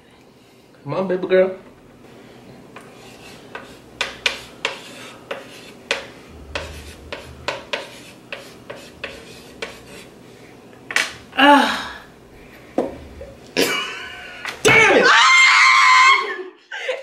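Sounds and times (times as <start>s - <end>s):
chalk rubbing on blackboard: 2.8s - 10.2s.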